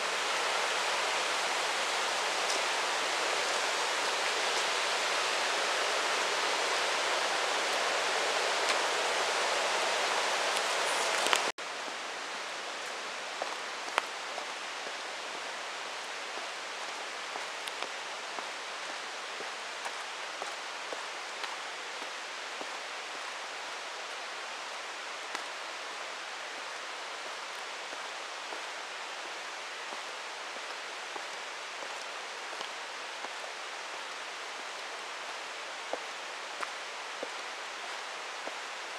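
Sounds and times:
water rushing over rocks: 0.0 - 11.6
forest ambience: 0.0 - 38.9.

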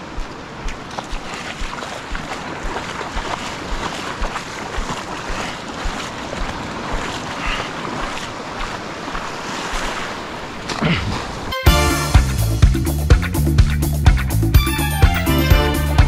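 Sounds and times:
surf washing in shallows: 0.0 - 12.1.

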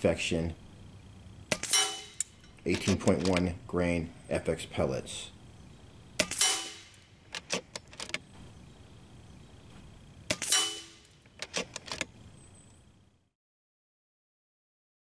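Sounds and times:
rifle mechanism clicks: 1.5 - 3.5, 6.2 - 8.2, 10.3 - 12.1
air rifle shot: 6.2 - 7.0.

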